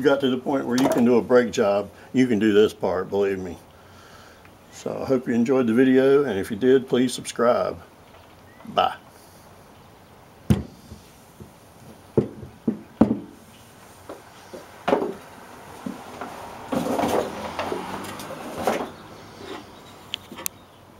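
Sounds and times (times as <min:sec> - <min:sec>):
scraping and rustling: 0:10.6 - 0:20.5.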